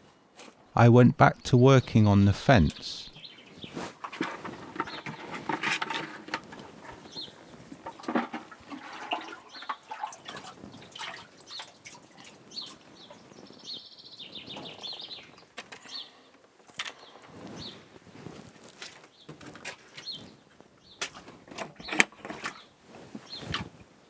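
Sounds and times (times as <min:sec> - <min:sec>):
bird chirping: 0:01.2 - 0:03.8, 0:06.9 - 0:08.1, 0:10.7 - 0:16.3, 0:16.9 - 0:17.9.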